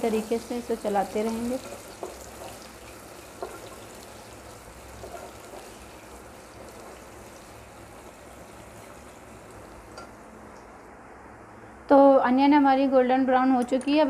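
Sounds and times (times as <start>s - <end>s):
onions sizzling in hot oil: 0.0s - 10.4s.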